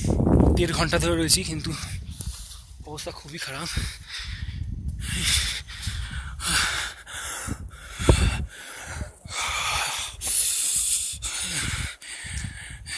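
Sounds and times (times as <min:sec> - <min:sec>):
heavy rapid breathing: 0:03.6 - 0:12.9.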